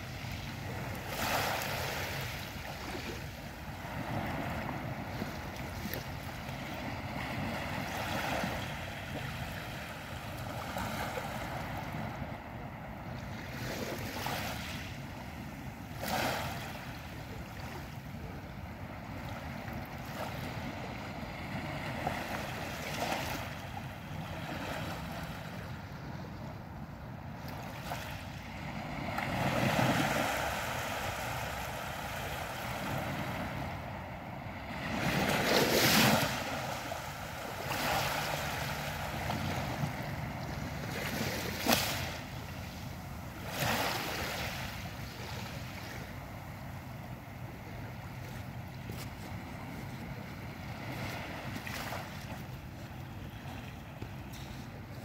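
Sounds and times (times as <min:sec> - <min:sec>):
small waves lapping on beach: 0:00.0 - 0:55.0.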